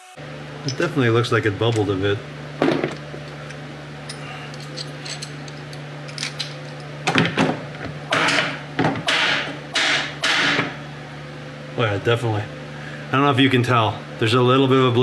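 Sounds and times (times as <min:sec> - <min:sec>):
steady low hum: 0:00.2 - 0:15.0
tools clattering and scraping: 0:00.6 - 0:01.0, 0:02.6 - 0:09.1
metal tool parts clicking and knocking: 0:02.8 - 0:06.8.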